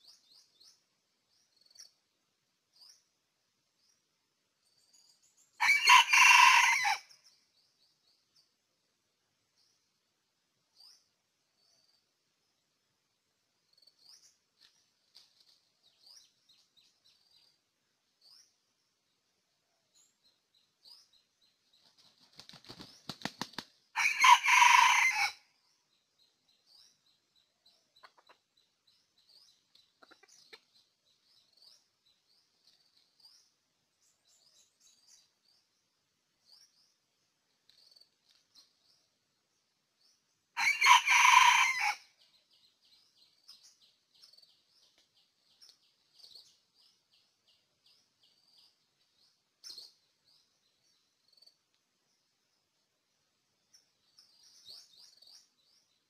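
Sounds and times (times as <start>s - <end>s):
rooster crowing: 5.6s - 7.1s, 24.0s - 25.4s, 40.6s - 42.0s
rooster flapping wings: 21.8s - 23.8s.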